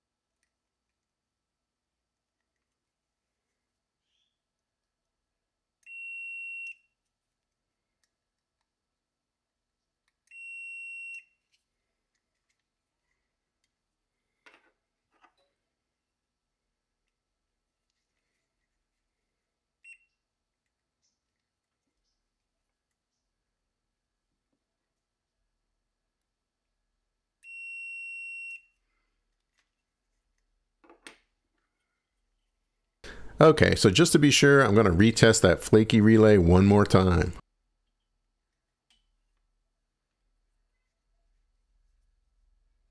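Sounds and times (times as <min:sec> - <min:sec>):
multimeter continuity beep: 0:05.8 - 0:06.9, 0:10.3 - 0:11.4, 0:27.4 - 0:28.8.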